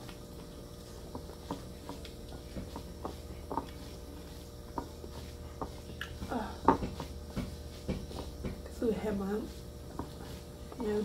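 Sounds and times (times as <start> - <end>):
low steady hum: 0.0 - 11.0
wet chewing and smacking: 5.8 - 6.2.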